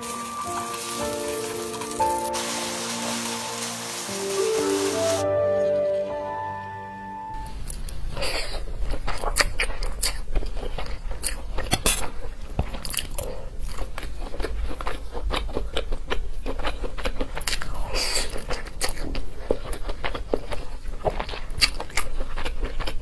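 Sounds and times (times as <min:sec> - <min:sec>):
wet chewing and smacking: 0:07.6 - 0:23.0.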